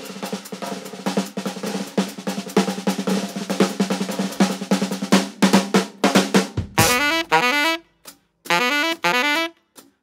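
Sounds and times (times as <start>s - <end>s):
rapid drum hits: 0.0s - 7.4s.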